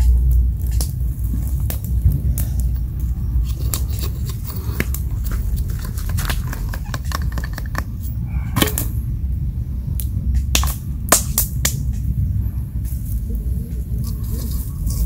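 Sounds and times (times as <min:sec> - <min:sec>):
campfire crackling and popping: 0:00.0 - 0:15.0
low rumble: 0:00.0 - 0:15.0
knife shaving a stick: 0:00.6 - 0:08.2, 0:12.9 - 0:15.0.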